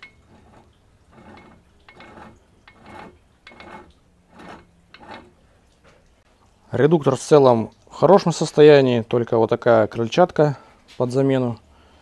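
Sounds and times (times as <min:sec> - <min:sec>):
metallic click and scrape: 0:00.0 - 0:05.4.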